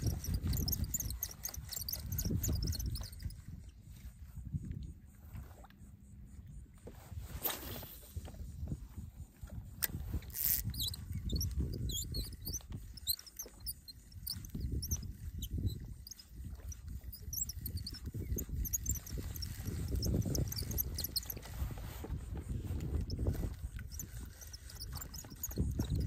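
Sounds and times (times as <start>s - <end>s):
wind and water rumble: 0.0s - 26.0s
faint high-pitched chirps: 10.3s - 21.4s.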